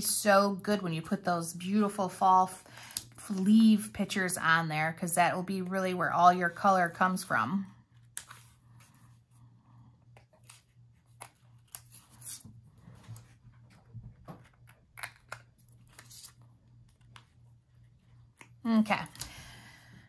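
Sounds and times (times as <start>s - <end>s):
paper rustling: 10.2s - 17.2s.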